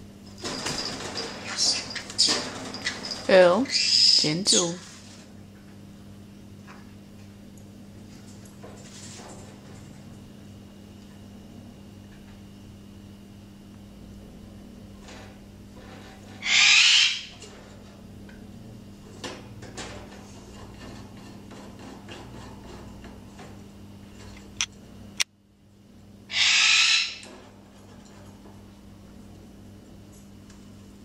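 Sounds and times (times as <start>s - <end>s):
parrot squawking: 3.6s - 4.8s, 16.4s - 17.4s, 26.3s - 27.2s.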